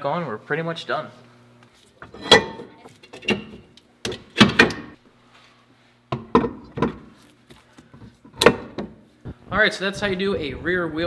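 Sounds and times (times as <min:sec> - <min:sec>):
metal clunks of wheel parts: 0:02.0 - 0:05.0.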